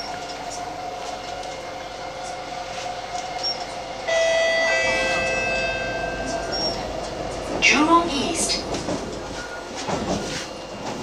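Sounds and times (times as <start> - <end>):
train rolling rumble: 0.0 - 11.0
steady ringing tone: 4.1 - 7.4.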